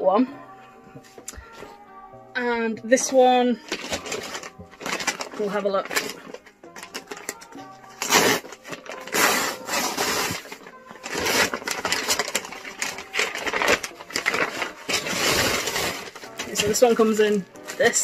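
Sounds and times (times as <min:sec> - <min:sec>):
paper bag tearing and crinkling: 0:03.6 - 0:18.0.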